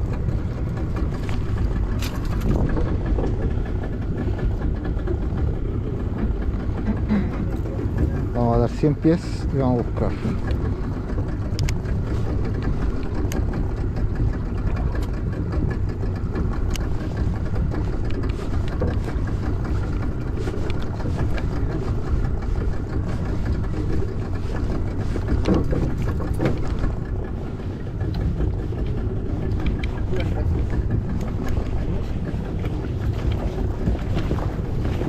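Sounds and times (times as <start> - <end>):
boat motor idling: 0.0 - 35.0
light clicks and knocks: 9.9 - 35.0.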